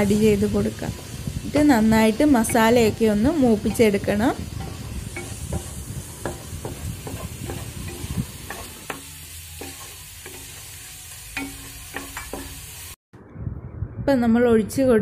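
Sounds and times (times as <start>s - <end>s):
masala sizzling: 0.0s - 13.0s
spatula knocking against pan: 2.4s - 10.5s
spatula scraping a frying pan: 2.5s - 12.8s.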